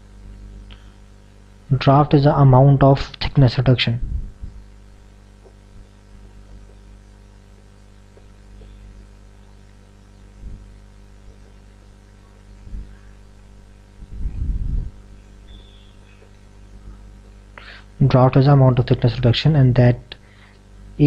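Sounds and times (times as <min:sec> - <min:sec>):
electrical mains hum: 0:00.0 - 0:21.0
faint low bumps: 0:04.0 - 0:04.7, 0:13.9 - 0:15.2.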